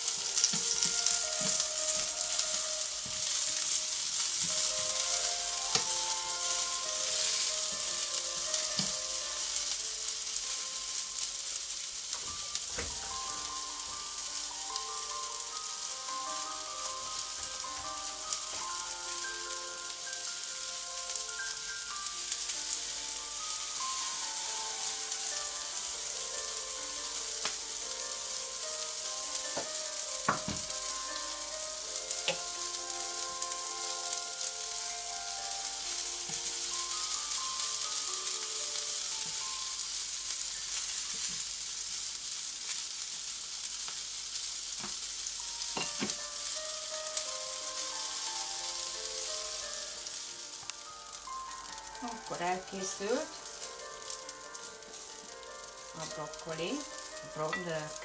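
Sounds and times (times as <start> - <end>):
quiet melody: 0.0 - 41.5, 45.3 - 58.0
vegetables sizzling in a pan: 0.0 - 58.0.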